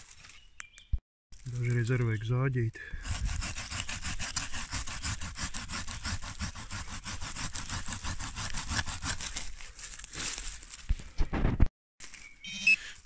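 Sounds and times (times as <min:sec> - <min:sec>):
hand saw rasping through roots: 0:03.0 - 0:10.5.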